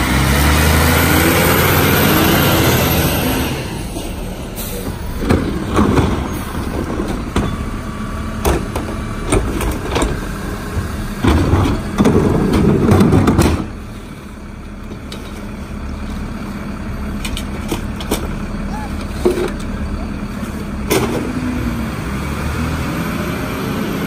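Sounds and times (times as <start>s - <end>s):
garbage truck engine and hydraulics: 0.0s - 24.0s
trash clattering: 4.0s - 14.1s, 17.1s - 21.5s
trash cart knocking on hopper: 8.4s - 13.8s.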